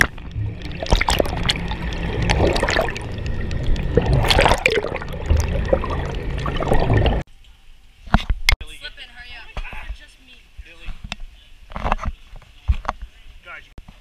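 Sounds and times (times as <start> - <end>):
low rumble: 0.0 - 7.2
water sloshing and bubbling underwater: 0.0 - 8.6.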